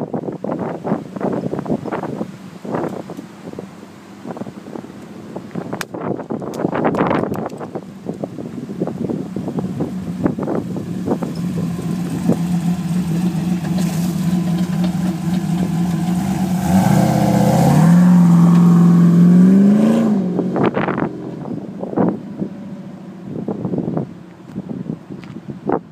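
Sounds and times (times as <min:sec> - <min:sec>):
engine driving past: 0:10.8 - 0:23.2.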